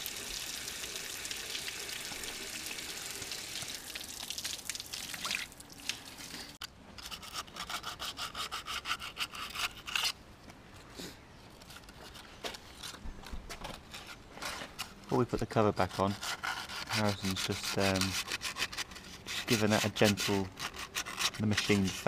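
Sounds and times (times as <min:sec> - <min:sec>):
hose water running: 0:00.0 - 0:06.6
sandpaper rubbing metal: 0:15.8 - 0:22.0.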